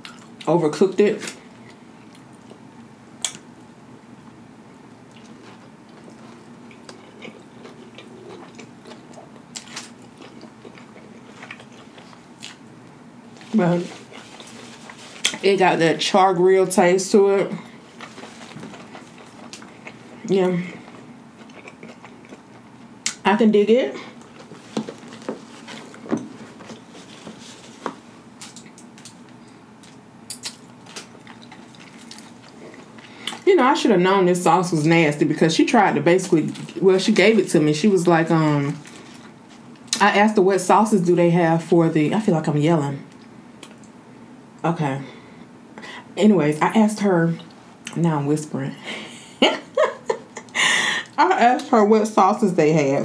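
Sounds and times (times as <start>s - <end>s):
close chewing sounds: 5.1s - 12.6s, 13.4s - 15.4s, 17.7s - 23.2s, 24.2s - 33.4s
paper wrapper rustling: 24.3s - 28.6s.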